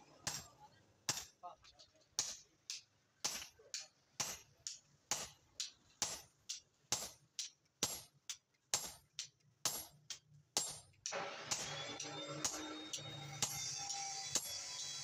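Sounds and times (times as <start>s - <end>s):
sledgehammer striking metal: 10.6s - 15.0s.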